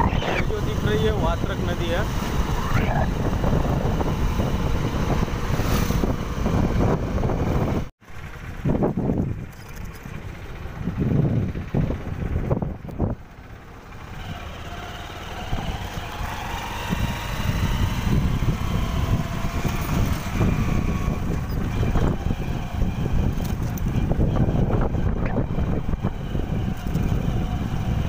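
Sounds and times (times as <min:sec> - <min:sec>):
wind buffeting microphone: 0:00.0 - 0:09.5, 0:10.1 - 0:13.3, 0:15.4 - 0:28.0
vehicle road and engine noise: 0:00.0 - 0:28.0.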